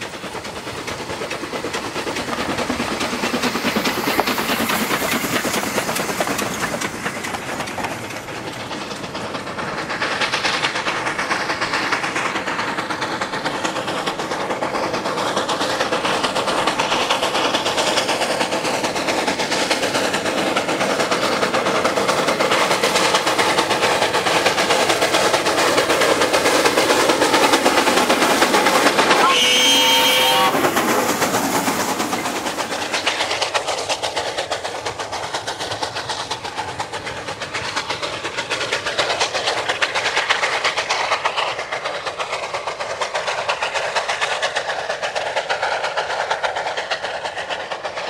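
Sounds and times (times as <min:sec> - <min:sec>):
wheels clattering over rail joints: 0:00.0 - 0:18.0
steam locomotive exhaust: 0:00.0 - 0:48.0.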